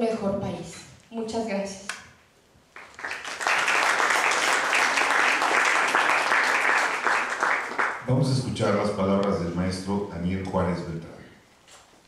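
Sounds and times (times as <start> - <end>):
audience applauding: 2.8 - 8.2.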